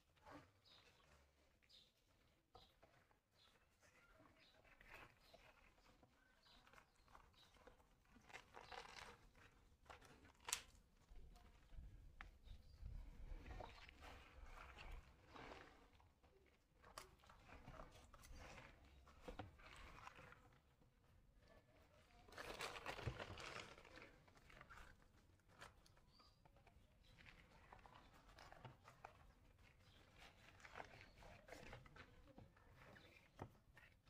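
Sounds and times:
hands rustling plant material: 0:22.3 - 0:26.0.

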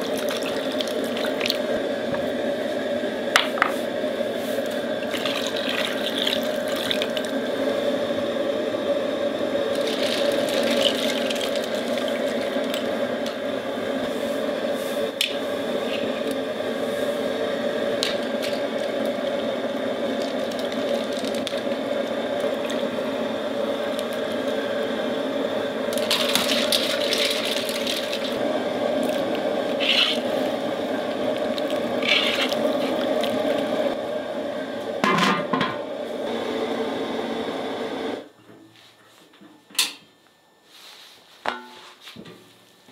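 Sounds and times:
water bubbling in cooking pot: 0:00.0 - 0:02.2, 0:04.8 - 0:14.0, 0:15.4 - 0:34.3.

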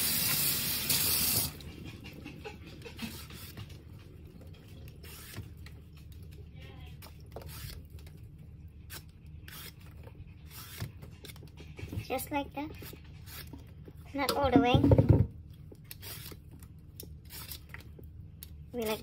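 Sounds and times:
vegetable peeler scraping cucumber: 0:08.9 - 0:11.4, 0:12.0 - 0:13.6, 0:15.9 - 0:16.4.

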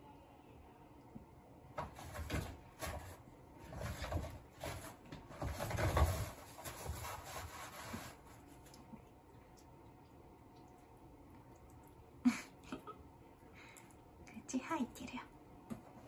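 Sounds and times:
toilet paper rustling and tearing: 0:01.8 - 0:08.7.

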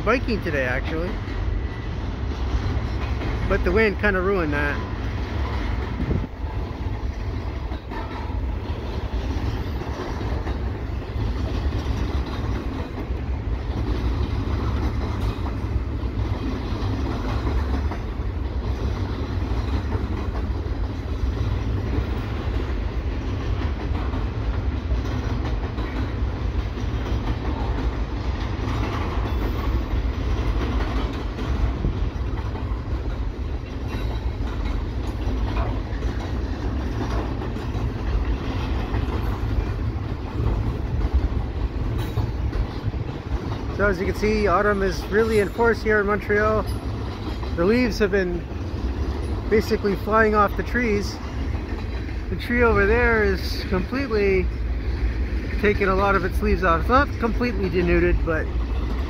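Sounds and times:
freight train rolling past: 0:00.0 - 0:59.0
wind on microphone: 0:05.6 - 0:06.8.

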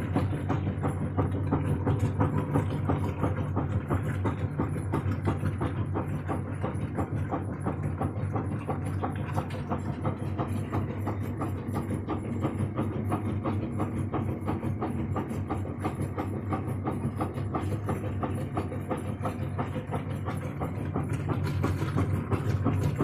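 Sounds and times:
washing machine motor hum: 0:00.0 - 0:23.0.

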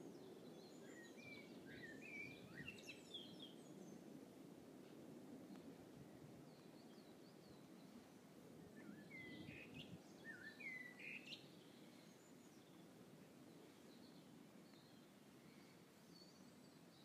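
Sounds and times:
songbird whistling: 0:08.8 - 0:11.4.

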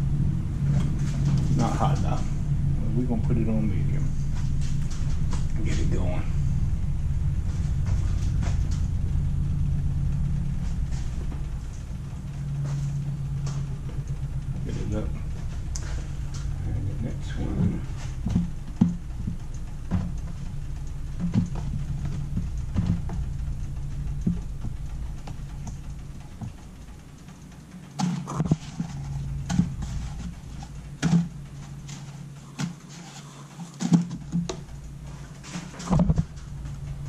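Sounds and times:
low steady hum: 0:00.0 - 0:37.0.

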